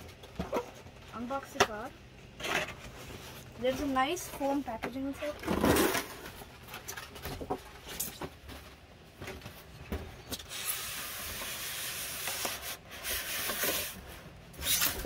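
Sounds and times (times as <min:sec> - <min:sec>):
foam rubbing against cardboard: 0:10.5 - 0:14.0.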